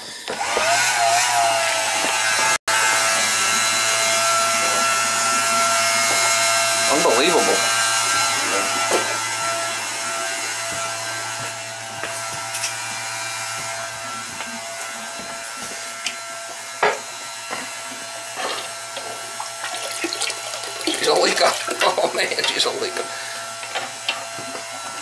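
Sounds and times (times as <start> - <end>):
water hissing through hose: 19.0 - 23.4.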